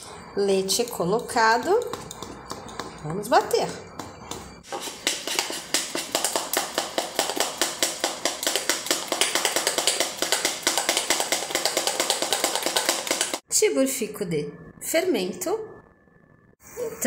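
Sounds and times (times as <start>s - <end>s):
spoon beating batter in glass bowl: 0.7s - 13.4s.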